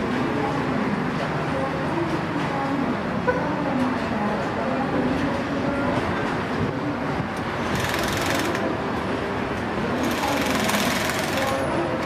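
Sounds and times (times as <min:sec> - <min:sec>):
track-laying machinery rattling: 0:07.4 - 0:09.0, 0:09.8 - 0:12.0
power wrench hammering burst: 0:07.6 - 0:08.6, 0:10.0 - 0:11.6.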